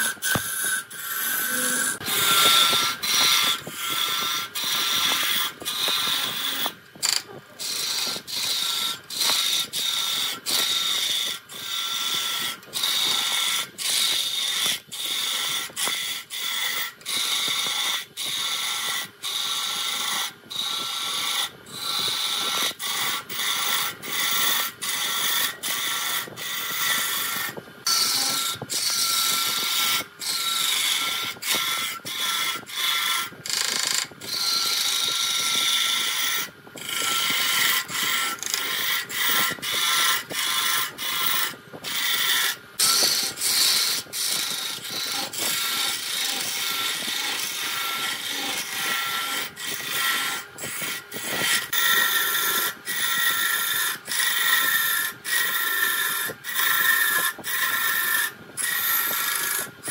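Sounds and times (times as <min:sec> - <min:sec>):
steady high whine: 0:00.0 - 0:03.8
lathe tool cutting wood: 0:00.0 - 0:59.9.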